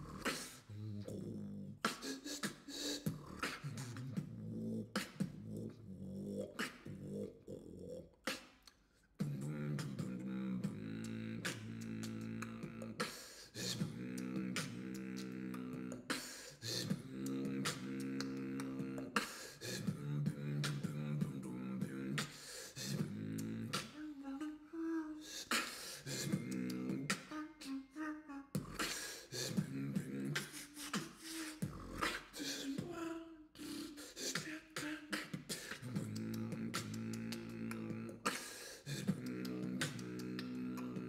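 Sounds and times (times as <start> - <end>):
beatboxing hummed bass line: 0.0 - 24.0, 25.4 - 27.6, 28.5 - 41.0
mouth percussive hits: 34.4 - 41.0.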